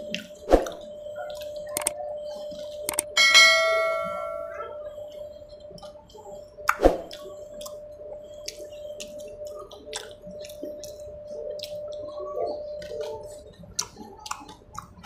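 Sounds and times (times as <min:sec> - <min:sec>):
chewing and dripping: 0:00.0 - 0:03.2, 0:04.9 - 0:15.0
faint steady hum: 0:00.0 - 0:15.0
bell-like notification chime: 0:03.2 - 0:04.7.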